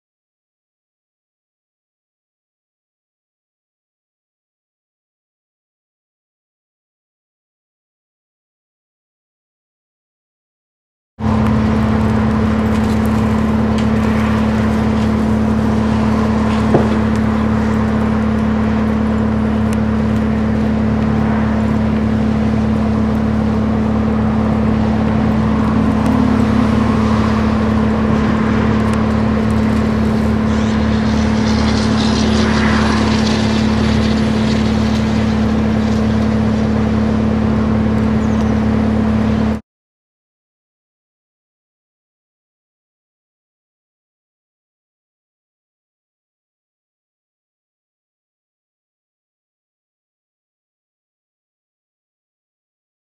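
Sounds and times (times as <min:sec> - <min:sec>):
motor running with low hum: 0:11.2 - 0:39.6.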